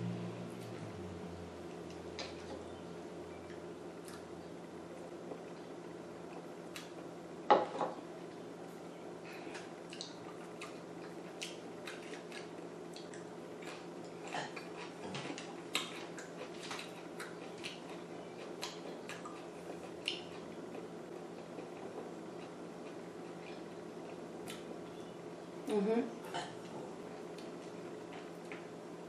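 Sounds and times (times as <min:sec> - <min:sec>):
steady low hum: 0:00.0 - 0:29.0
chewing with wet mouth clicks: 0:09.5 - 0:24.7.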